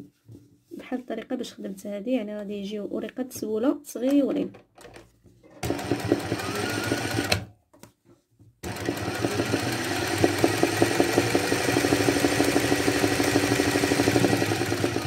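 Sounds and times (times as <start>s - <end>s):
sewing machine stitching: 5.4s - 7.5s, 8.6s - 15.0s.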